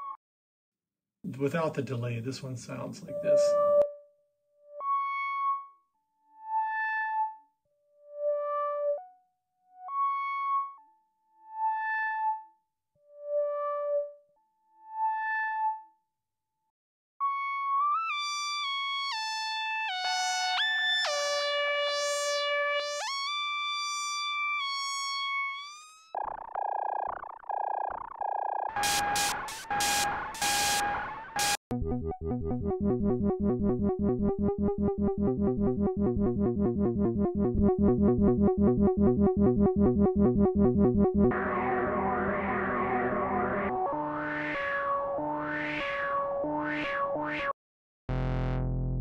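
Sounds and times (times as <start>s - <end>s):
synthesizer single notes: 17.2s - 49.0s
buzzy low synth tone: 20.0s - 47.5s, 48.1s - 49.0s
synthesizer gliding sustained tones: 32.2s - 47.3s.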